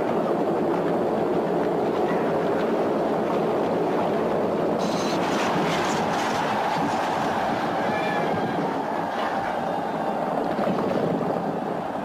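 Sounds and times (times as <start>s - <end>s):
chariot wheels rumbling over sand: 0.0s - 12.0s
horses galloping: 0.0s - 12.0s.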